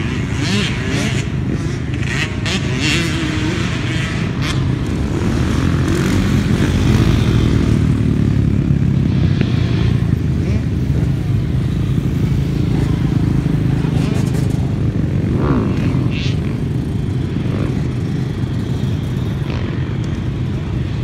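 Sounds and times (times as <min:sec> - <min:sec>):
dirt bike engines revving: 0:00.0 - 0:21.0
dirt bike passing close: 0:00.0 - 0:21.0.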